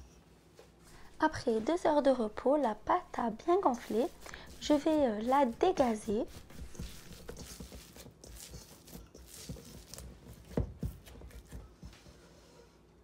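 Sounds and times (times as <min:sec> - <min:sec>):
dough being punched: 0:03.6 - 0:12.1.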